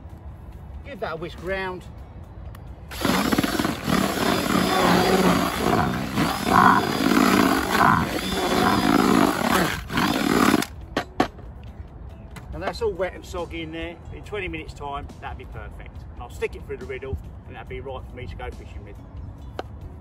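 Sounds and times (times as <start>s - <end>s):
drill with whisk churning in bucket: 2.9s - 10.7s.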